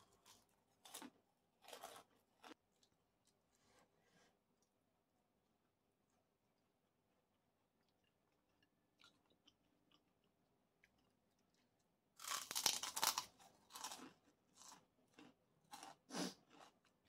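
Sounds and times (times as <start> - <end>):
person chewing crunchy food: 0.0 - 3.4, 7.7 - 17.0.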